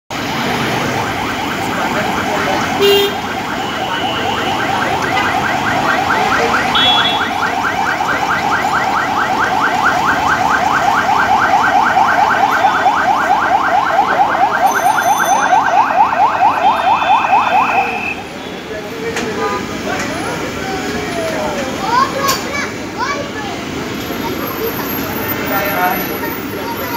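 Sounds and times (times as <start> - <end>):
siren yelping: 0.8 - 18.3.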